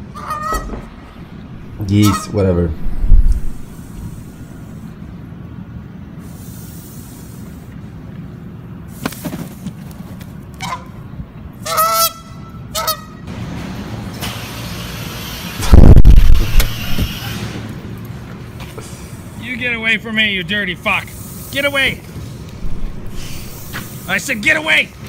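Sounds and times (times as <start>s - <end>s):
goose honking: 0.0s - 0.8s, 1.8s - 2.4s, 10.6s - 11.0s, 11.6s - 13.2s
loud low rumble: 0.9s - 4.6s, 15.6s - 17.0s, 22.6s - 23.7s.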